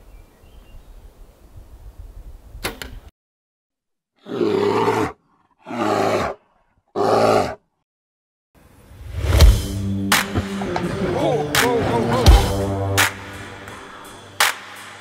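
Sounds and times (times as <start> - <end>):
large animal roaring: 4.2 - 7.6.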